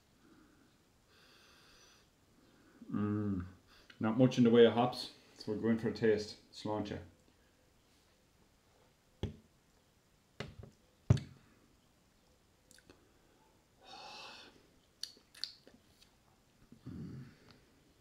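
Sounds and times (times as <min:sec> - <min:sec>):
lip smacks: 0:12.6 - 0:13.0, 0:14.8 - 0:16.2.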